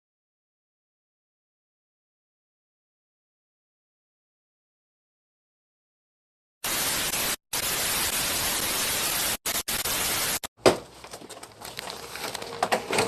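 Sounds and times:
tv static hiss: 6.6s - 10.5s.

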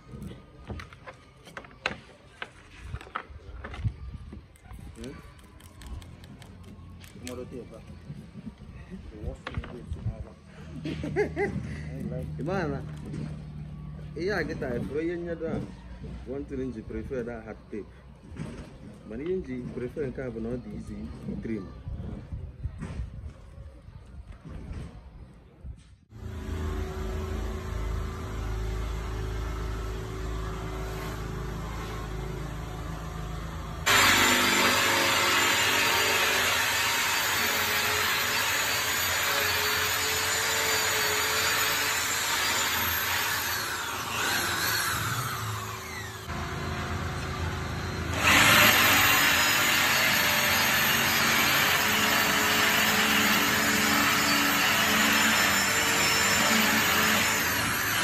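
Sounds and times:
cordless drill boring: 33.8s - 58.0s.

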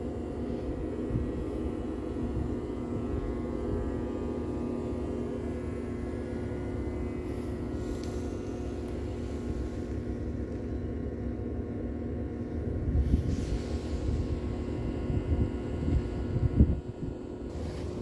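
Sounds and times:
low mechanical hum: 0.0s - 18.0s
wind buffeting microphone: 12.7s - 18.0s.

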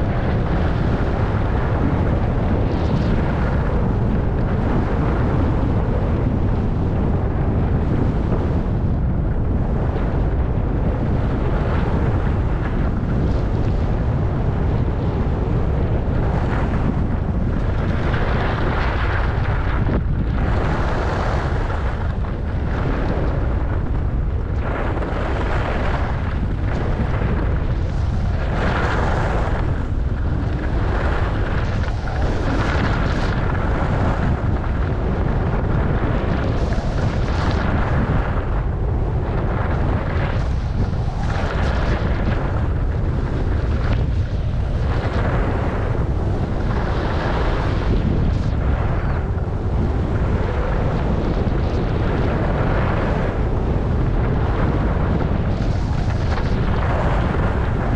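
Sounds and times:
wind buffeting microphone: 0.0s - 57.9s.

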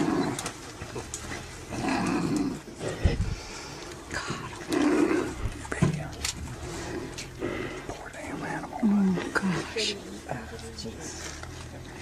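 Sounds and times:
wild dogs crying and growling: 0.0s - 5.7s, 6.4s - 10.3s.

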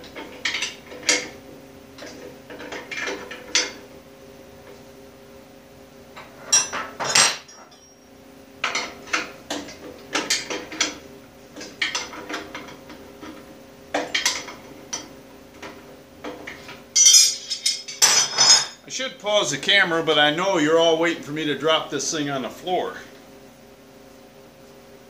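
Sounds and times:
faint steady hum: 0.0s - 25.0s
metal clatter: 15.6s - 18.8s
wrench clinking on metal: 17.0s - 18.8s.

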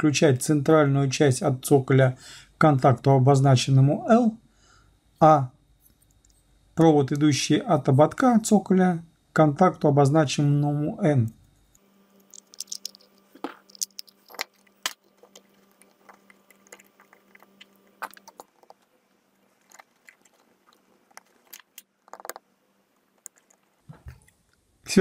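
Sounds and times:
faint steady hum: 0.0s - 25.0s
clicks and crackles of handling: 12.2s - 22.4s, 23.2s - 24.4s.

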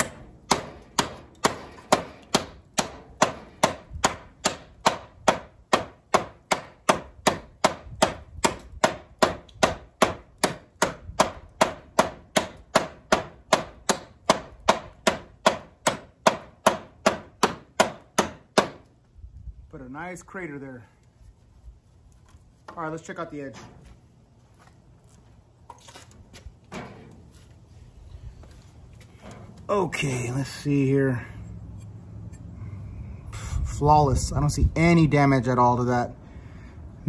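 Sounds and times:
knife chopping into wood: 0.0s - 18.8s.

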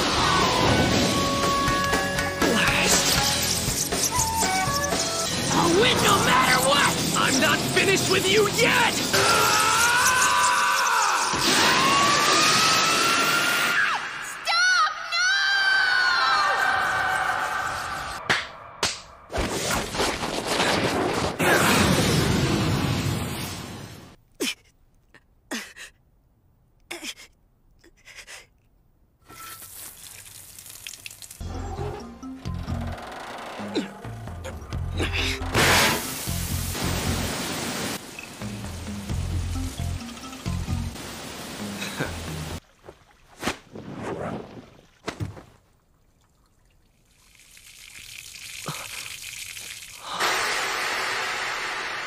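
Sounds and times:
water rushing out of tank: 35.5s - 38.3s, 47.1s - 52.0s.

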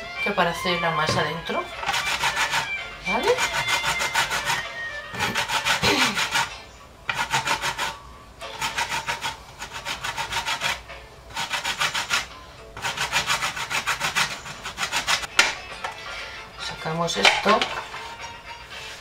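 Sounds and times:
peel rasping on metal grater: 1.8s - 15.3s.

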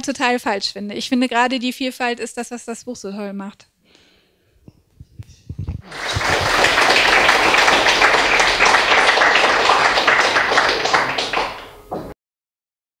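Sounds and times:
audience applauding: 5.8s - 12.2s.

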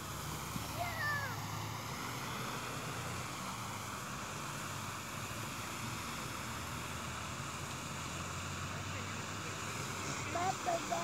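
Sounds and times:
rushing outdoor background noise: 0.0s - 11.0s.

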